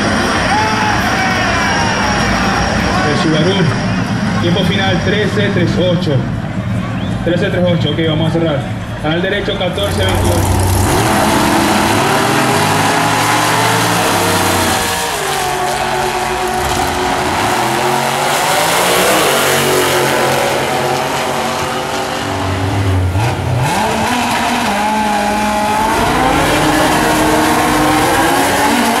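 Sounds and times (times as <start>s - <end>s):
drag racing engines revving: 0.0s - 29.0s.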